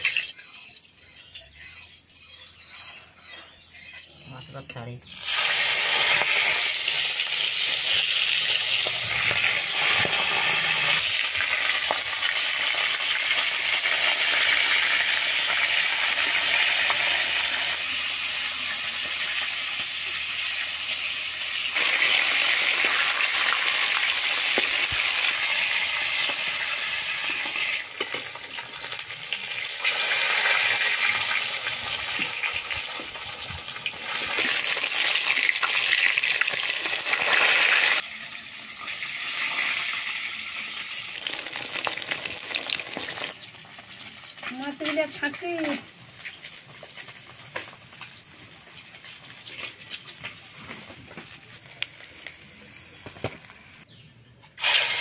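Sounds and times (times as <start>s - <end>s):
fish sizzling in hot oil: 0.0s - 4.1s, 5.1s - 53.9s, 54.6s - 55.0s
steel spatula clicking and scraping: 0.0s - 17.5s, 21.7s - 37.5s.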